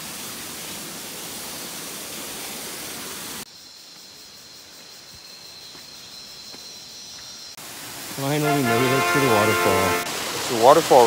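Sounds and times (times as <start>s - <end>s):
stream water rushing: 0.0s - 3.5s, 7.6s - 11.0s.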